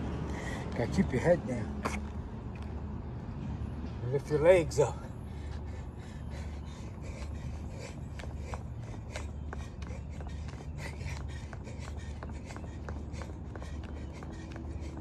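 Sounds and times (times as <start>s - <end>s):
jump rope ticking on asphalt: 4.9s - 15.0s.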